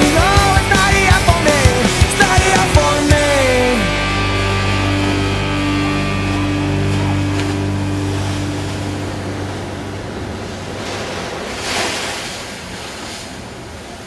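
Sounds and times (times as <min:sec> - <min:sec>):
ocean surf breaking against wall: 0:05.9 - 0:14.0
wave crashing over wall: 0:05.9 - 0:14.0.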